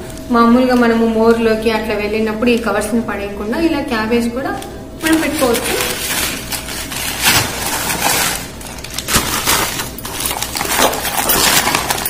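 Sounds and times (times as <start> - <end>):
plastic bag crinkling: 5.0 - 12.0.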